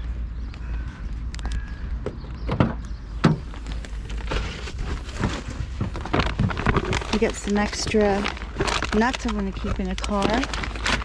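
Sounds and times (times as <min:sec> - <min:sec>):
knocks and rustles from handling: 0:02.0 - 0:11.0.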